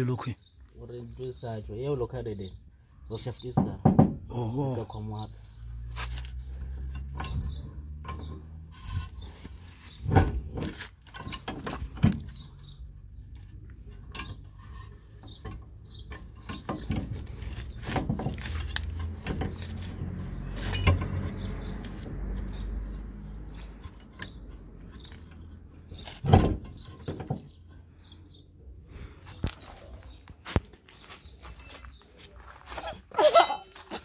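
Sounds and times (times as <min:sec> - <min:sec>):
hand tools clinking on metal: 0:20.5 - 0:21.4, 0:31.4 - 0:34.0.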